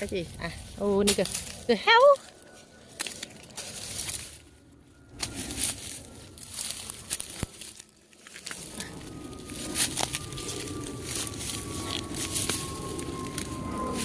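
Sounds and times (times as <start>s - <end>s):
dry undergrowth rustling and crackling: 0.0s - 14.0s.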